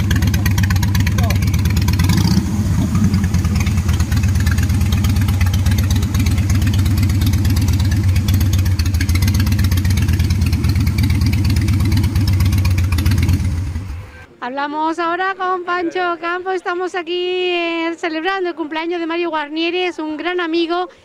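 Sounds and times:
motorcycle engine idling: 0.0s - 14.3s.

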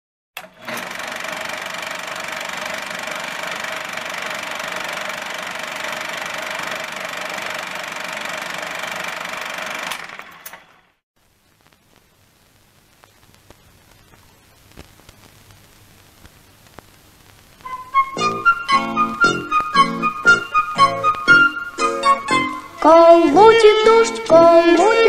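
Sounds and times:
film projector clattering: 0.4s - 10.8s.

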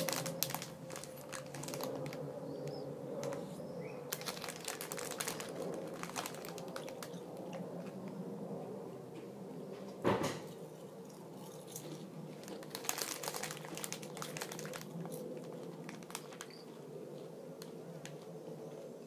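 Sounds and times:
crisp crunching: 0.0s - 2.3s, 4.1s - 8.0s, 11.4s - 17.3s
foil packet crackling: 0.0s - 3.5s, 4.1s - 7.8s, 12.3s - 17.3s
crisps being chewed: 0.0s - 8.2s, 11.0s - 18.3s.

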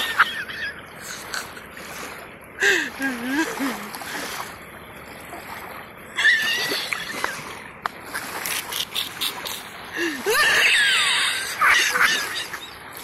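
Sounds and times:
water splashing: 0.0s - 13.0s
high-pitched honking laughter: 8.5s - 12.6s.

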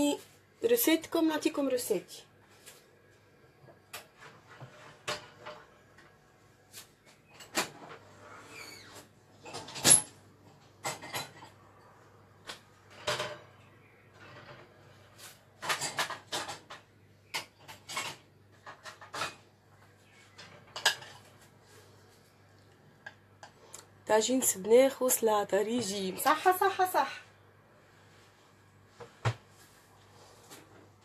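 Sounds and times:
dishes and pots clattering: 10.8s - 11.6s, 15.6s - 19.5s, 20.4s - 21.4s.

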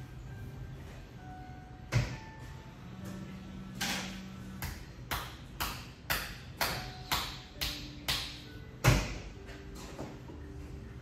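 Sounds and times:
hands striking body rhythmically: 4.6s - 8.4s.

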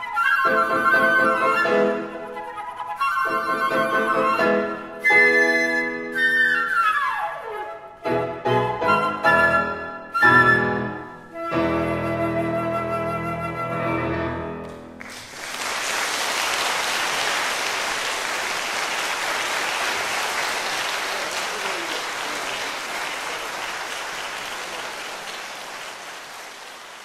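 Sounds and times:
audience applauding: 14.6s - 27.0s.

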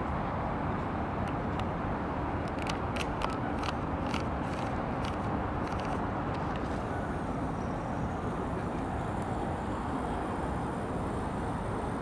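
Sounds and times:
distant traffic hum: 0.0s - 12.0s.

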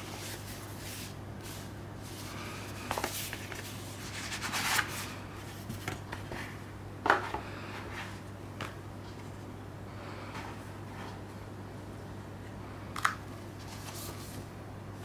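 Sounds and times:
cardboard rustling and sliding: 0.0s - 6.6s
steady low hum: 0.0s - 15.0s.

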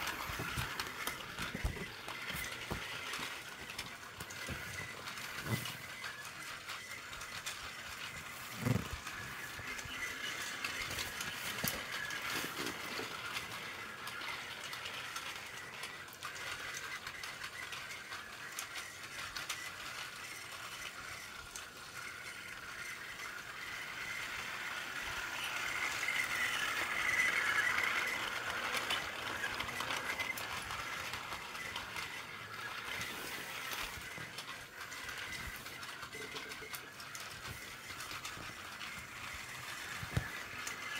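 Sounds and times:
toy train whirring on plastic track: 0.0s - 40.9s.

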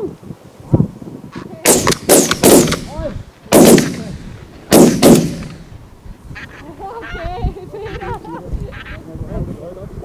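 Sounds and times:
shotgun shots: 1.6s - 5.8s
geese honking: 6.4s - 9.0s.

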